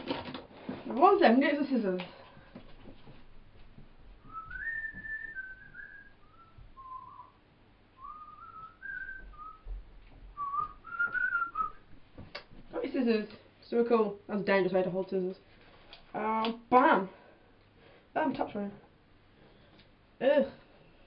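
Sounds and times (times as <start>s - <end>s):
person whistling a tune: 4.3s - 7.4s, 8.0s - 9.7s, 10.4s - 11.8s.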